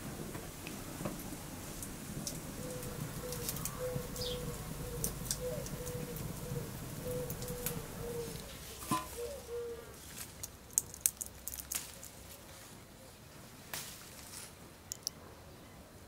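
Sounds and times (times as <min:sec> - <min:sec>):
bird low steady call: 0:02.5 - 0:10.0.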